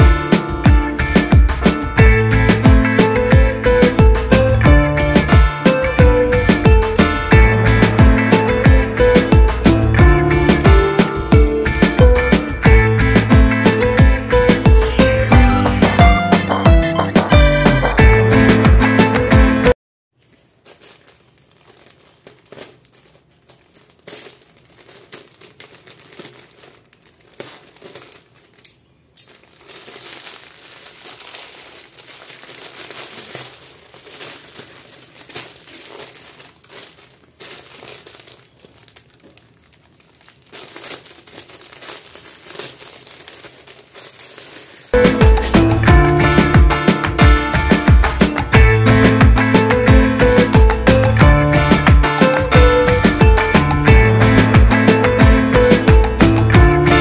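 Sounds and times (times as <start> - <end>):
music: 0.0 - 19.8, 45.0 - 57.0
plastic packaging crinkling: 20.1 - 45.8
scissors cutting plastic bag: 20.2 - 45.5.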